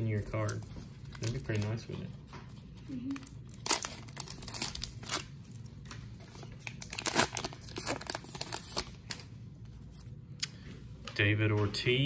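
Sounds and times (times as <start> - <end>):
wrapper tearing and crinkling: 3.1 - 5.7, 6.4 - 9.3.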